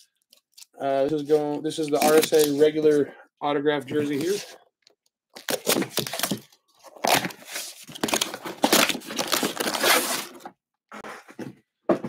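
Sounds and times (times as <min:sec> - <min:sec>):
box cutter slitting packing tape: 0:05.4 - 0:10.4
packaging crinkling: 0:05.4 - 0:10.4
cardboard flaps tearing open: 0:05.4 - 0:10.5.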